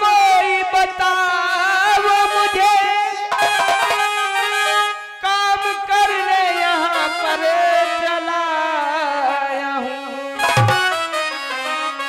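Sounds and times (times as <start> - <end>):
electronic keyboard melody: 3.3 - 5.8, 10.3 - 12.0.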